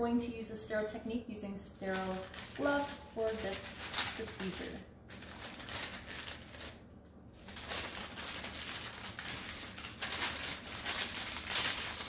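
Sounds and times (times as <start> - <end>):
paper wrapper rustling: 1.8 - 6.8, 7.4 - 12.0.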